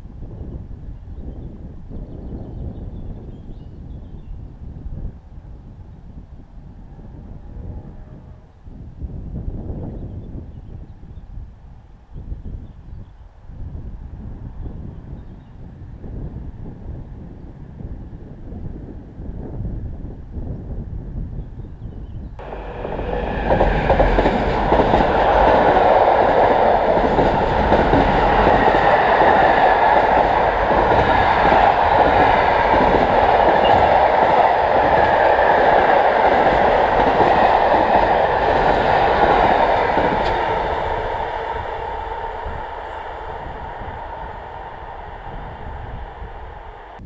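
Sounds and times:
train clickety-clack: 22.4s - 44.7s
freight train wheels rumbling: 22.4s - 47.0s.

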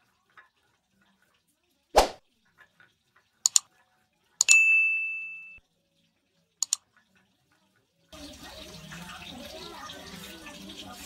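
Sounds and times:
bell ding: 4.4s - 5.6s.

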